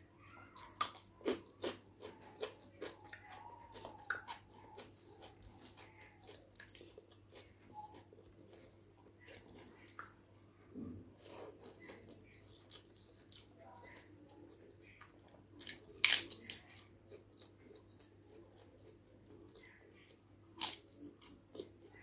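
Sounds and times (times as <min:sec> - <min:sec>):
chewing rice: 0:00.2 - 0:22.0.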